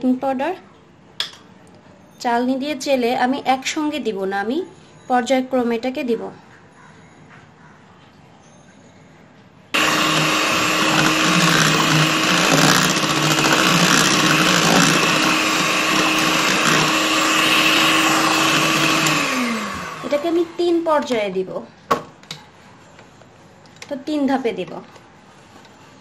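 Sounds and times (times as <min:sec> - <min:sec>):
electric hand mixer running: 0:09.8 - 0:20.9.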